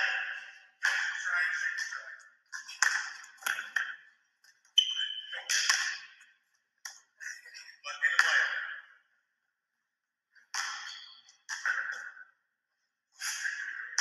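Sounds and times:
basketball slapping hands: 0.8 - 4.0, 5.4 - 6.2, 10.4 - 12.1
sneakers squeaking on gym floor: 4.6 - 6.3, 10.5 - 12.2.

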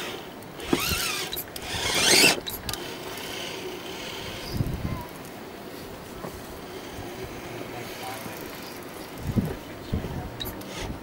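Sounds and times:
toy car motor whining: 0.0 - 4.6.

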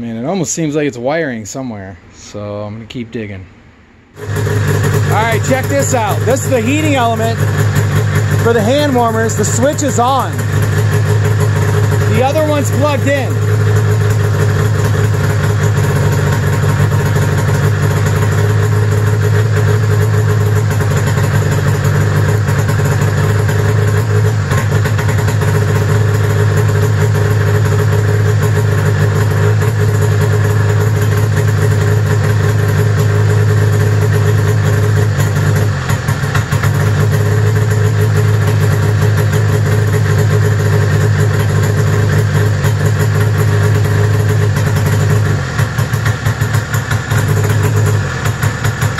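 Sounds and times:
snowmobile engine idling: 4.2 - 48.9.

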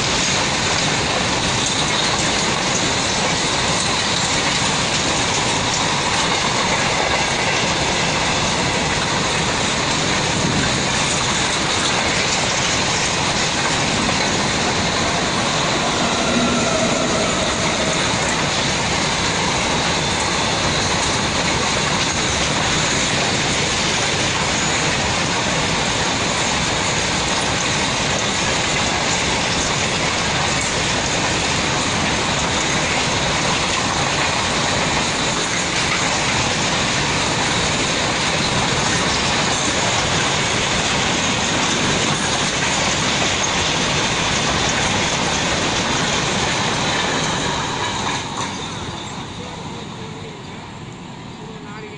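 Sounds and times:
train wheels rushing on rails: 0.0 - 51.9.

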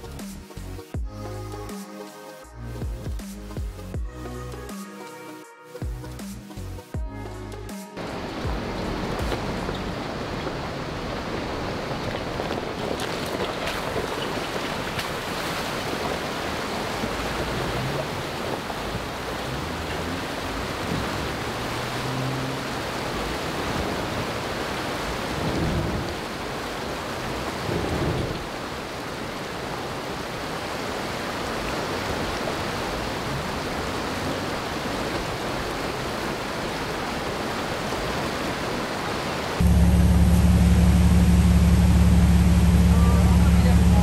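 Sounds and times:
rushing mountain creek: 0.0 - 44.0
car engine running low: 16.0 - 28.6, 39.6 - 44.0.

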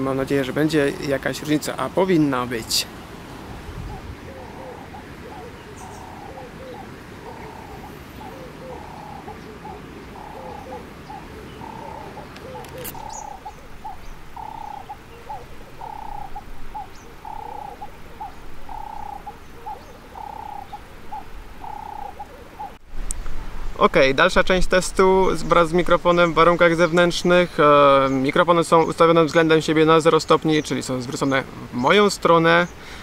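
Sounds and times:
river water: 0.0 - 23.7
wind: 0.0 - 33.0
dove cooing: 3.5 - 22.8.

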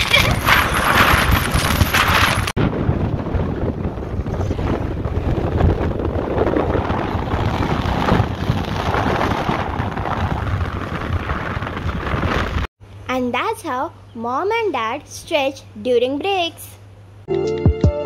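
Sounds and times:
wind buffeting microphone: 0.0 - 12.7.

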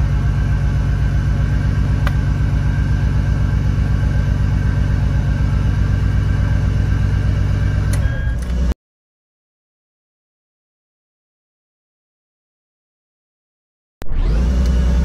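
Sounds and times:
car engine idling: 0.0 - 8.7, 14.3 - 15.0.

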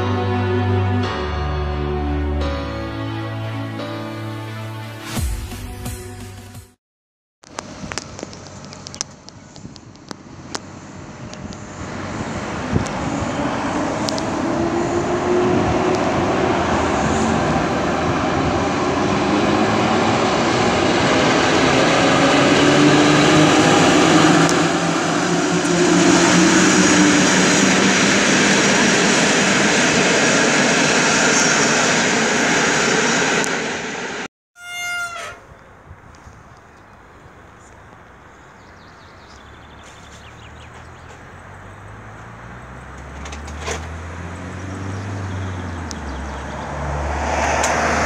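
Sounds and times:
train wheel and rail noise: 11.3 - 34.3.

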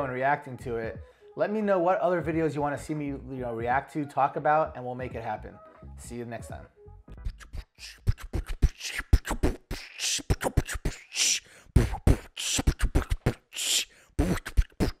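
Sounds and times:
beatbox-style percussion: 7.1 - 15.0.

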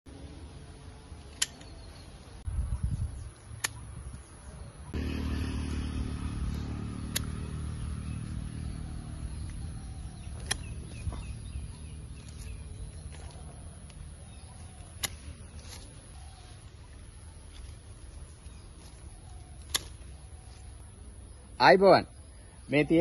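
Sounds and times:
pruning shears snipping: 1.2 - 2.0, 3.4 - 4.2, 6.3 - 20.8
steady low rumble: 4.9 - 21.6.

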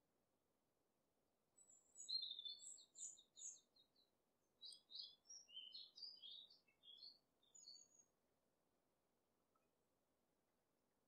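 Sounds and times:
faint bird chirping: 1.6 - 8.2.

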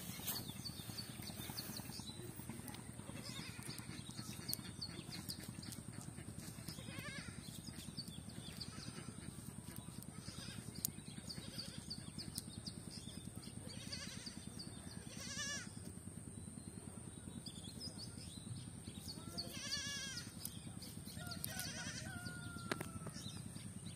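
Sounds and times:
steady high-pitched whine: 0.0 - 23.9
wavering animal bleats: 13.7 - 15.8, 19.4 - 20.3, 21.6 - 22.1.

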